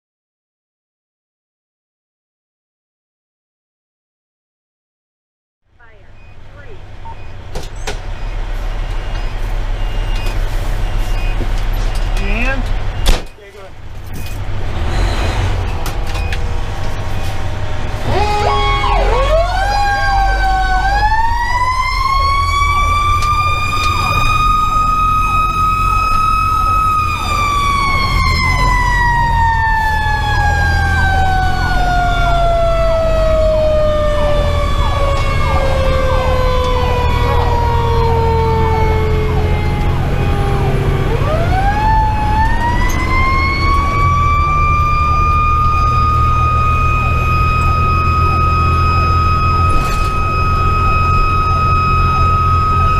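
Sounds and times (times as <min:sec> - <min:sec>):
diesel engine rumbling: 0:05.7 - 0:52.9
electronic siren sweep: 0:17.0 - 0:52.9.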